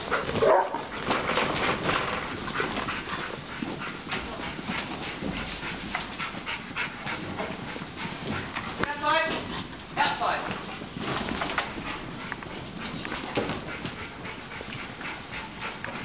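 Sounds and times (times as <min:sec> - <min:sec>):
sheep shifting with clattering knocks: 0:00.0 - 0:15.2
sheepdog barking and whining: 0:00.1 - 0:01.0.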